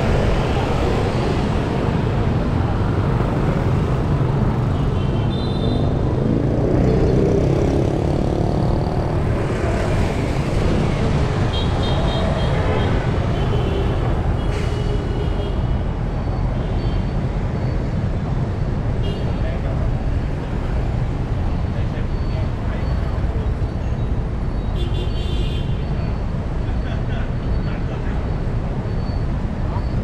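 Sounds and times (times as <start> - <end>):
rumble of passing engines: 0.0 - 5.0, 5.8 - 24.7.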